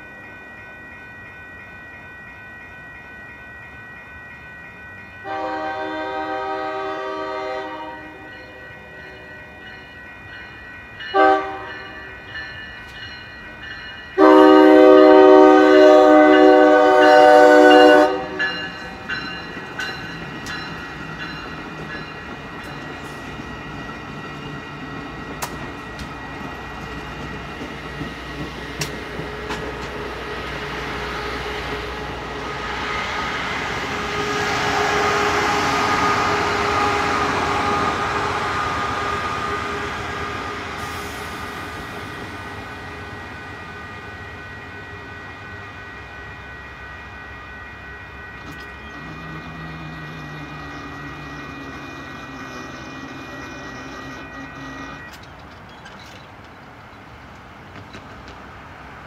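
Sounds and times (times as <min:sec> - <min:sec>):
crossing warning bell ringing: 0:00.0 - 0:56.3
passing train rumble: 0:00.0 - 0:59.0
train horn blasts: 0:05.2 - 0:08.4, 0:11.1 - 0:12.0, 0:14.2 - 0:18.6, 0:48.4 - 0:55.2
wheels clicking on rails: 0:17.7 - 0:31.0, 0:48.4 - 0:58.5.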